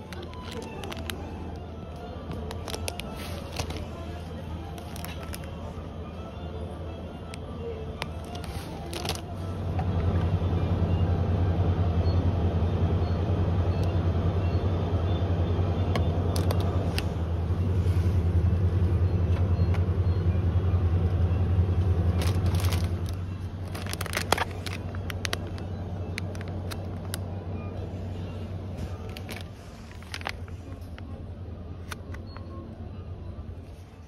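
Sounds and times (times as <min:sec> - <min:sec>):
motor vehicle engine drone: 0:00.0 - 0:34.0.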